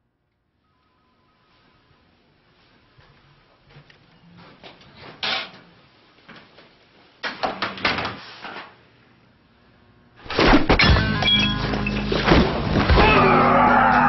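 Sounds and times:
fist fight blows and crashing: 10.2 - 11.3, 12.2 - 13.4.

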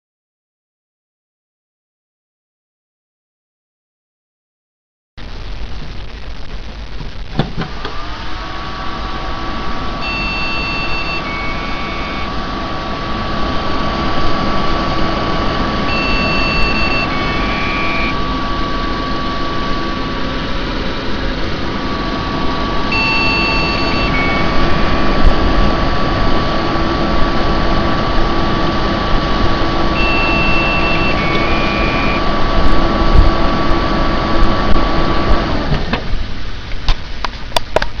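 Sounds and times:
computer fans whirring: 5.2 - 38.0
two-tone computer beeps: 10.0 - 12.3, 15.9 - 18.4, 22.9 - 25.3, 30.0 - 32.2.

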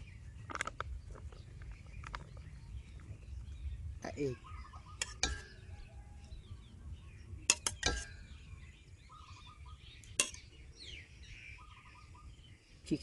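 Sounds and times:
birds chirping: 0.0 - 13.0
eggs cracking on a metal bowl: 0.4 - 2.4, 5.0 - 5.8, 7.4 - 8.5, 10.0 - 10.6.

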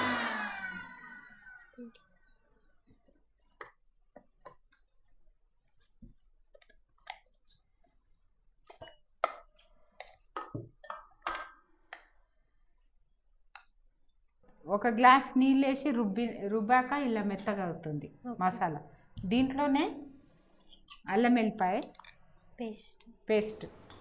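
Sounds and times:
metal jar clicks and clinks: 5.6 - 7.8, 8.7 - 11.7, 20.2 - 22.6.

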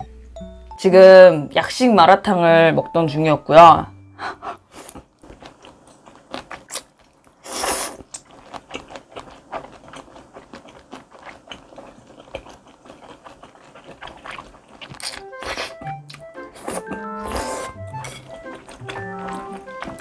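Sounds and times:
wet chewing with mouth clicks: 4.7 - 20.0
slurp of noodles: 7.4 - 8.1.

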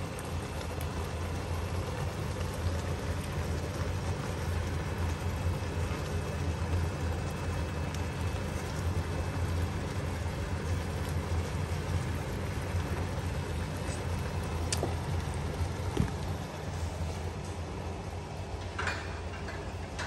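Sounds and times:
prawns sizzling in oil: 0.0 - 17.6
steady low hum: 0.0 - 20.0.

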